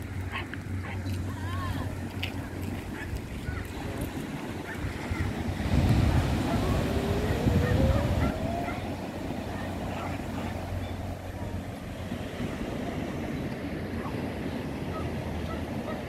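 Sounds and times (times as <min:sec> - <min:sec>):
small waves breaking on shore: 0:00.0 - 0:16.0
wind buffeting microphone: 0:00.0 - 0:16.0
faint rising tone: 0:06.4 - 0:09.9.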